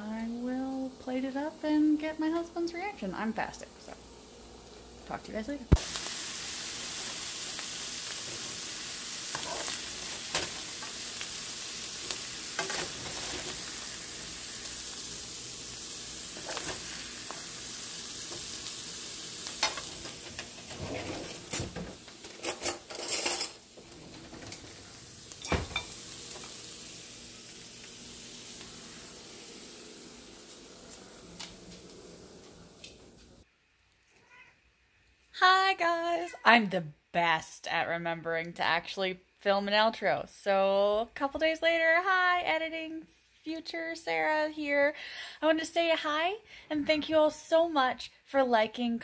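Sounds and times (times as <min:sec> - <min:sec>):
food sizzling in a wok: 0:00.0 - 0:33.5
utensils clattering: 0:19.6 - 0:26.5.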